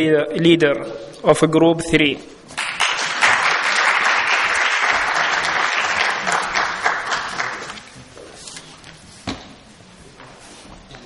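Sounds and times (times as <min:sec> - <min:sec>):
audience applauding: 0:02.6 - 0:07.9.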